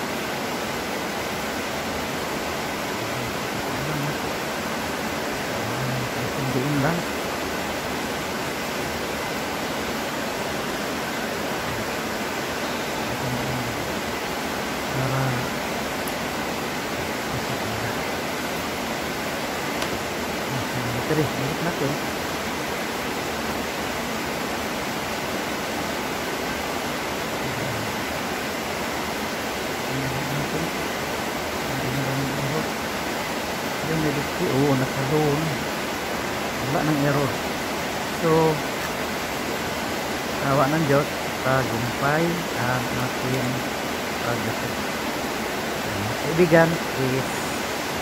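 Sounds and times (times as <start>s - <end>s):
steady background hiss: 0.0s - 48.0s.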